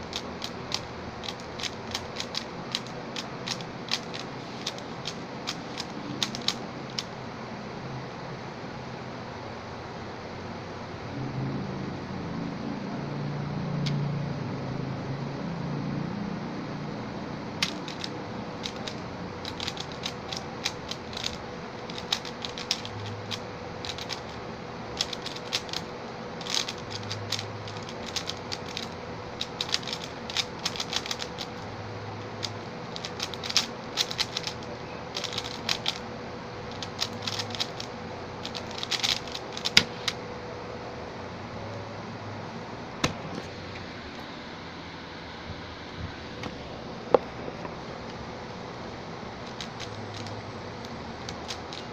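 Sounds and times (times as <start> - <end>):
puzzle cube plastic clicking: 0.0 - 7.1, 17.6 - 24.4, 25.0 - 31.6, 32.3 - 36.0, 36.7 - 40.2, 49.5 - 51.9
faint steady hum: 0.0 - 51.9.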